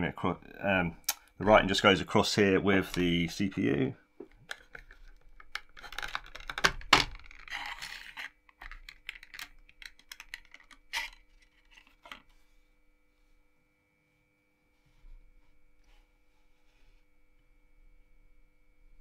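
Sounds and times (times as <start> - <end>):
faint steady hum: 0.0 - 19.0
hands handling computer parts: 4.2 - 12.5.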